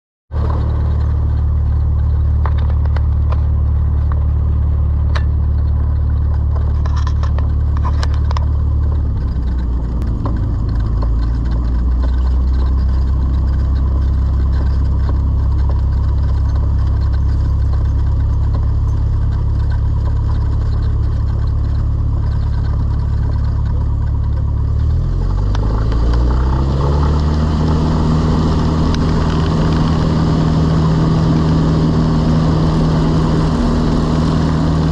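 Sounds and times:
propeller plane engine running: 0.3 - 34.9
light clicks and rattles: 0.4 - 27.1.

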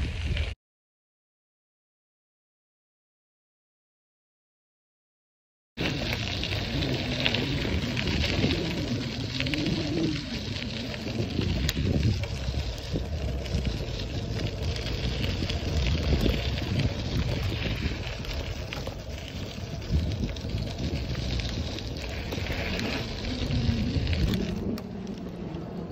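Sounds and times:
wind rumbling on microphone: 0.0 - 0.6, 5.8 - 25.9
tyres crackling over dirt: 5.8 - 25.9.

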